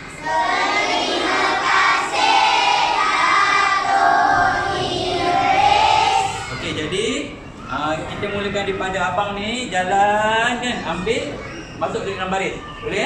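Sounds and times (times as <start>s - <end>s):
children singing in unison: 0.1s - 6.6s.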